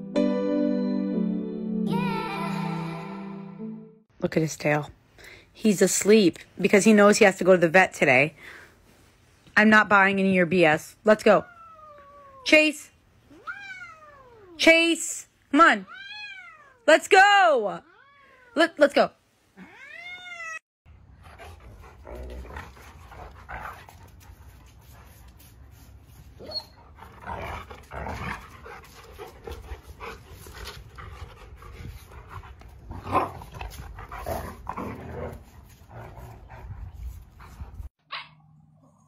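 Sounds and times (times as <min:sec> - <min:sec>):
dogs growling and barking: 0:21.1 - 0:24.2, 0:26.8 - 0:36.8.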